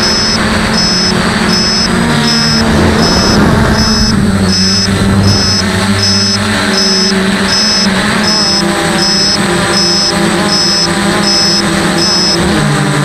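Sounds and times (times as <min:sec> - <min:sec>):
short high beep: 0:00.0 - 0:12.5
drone motors humming: 0:00.0 - 0:13.0.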